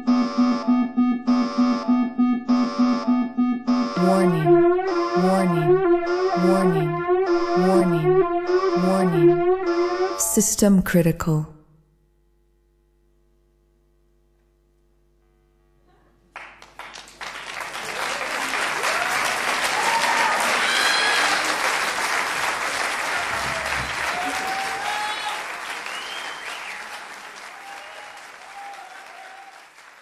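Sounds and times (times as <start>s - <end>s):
audience applauding: 16.3s - 30.0s
crowd shouting: 18.8s - 21.7s, 23.0s - 26.1s.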